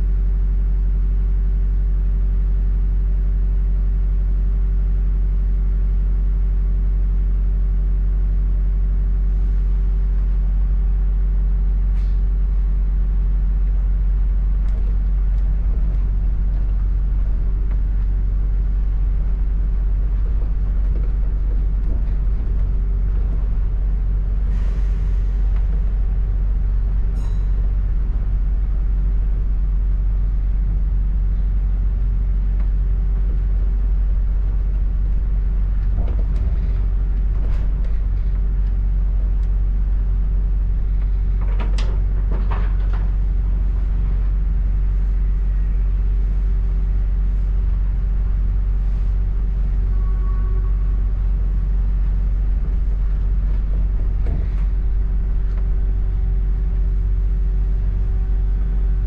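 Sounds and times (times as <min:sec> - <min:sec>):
bus engine rumble: 0:00.0 - 0:59.0
air brake hiss: 0:12.0 - 0:12.2, 0:24.5 - 0:25.4.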